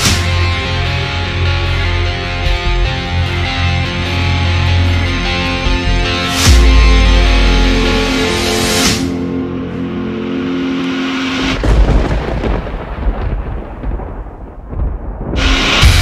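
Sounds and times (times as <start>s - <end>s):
rock music chord ringing: 0.0s - 12.3s.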